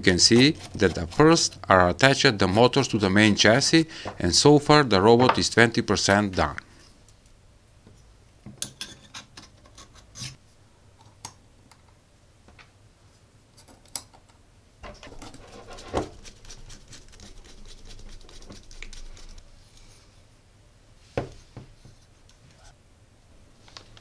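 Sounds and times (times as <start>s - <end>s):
metal scraping and rubbing: 0.0s - 3.9s, 14.9s - 19.5s.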